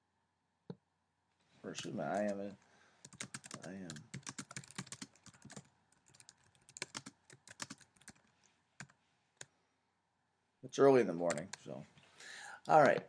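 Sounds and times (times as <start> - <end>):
keyboard typing clicks: 3.0 - 8.2.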